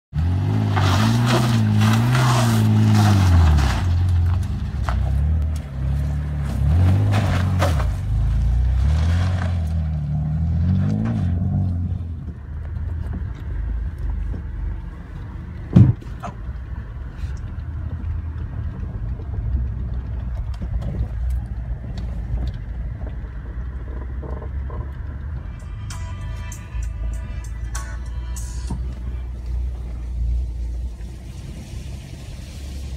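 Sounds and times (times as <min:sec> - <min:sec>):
car driving on dirt track: 0:00.1 - 0:32.9
car engine revving: 0:00.1 - 0:32.9
sharp thump: 0:15.7 - 0:16.2.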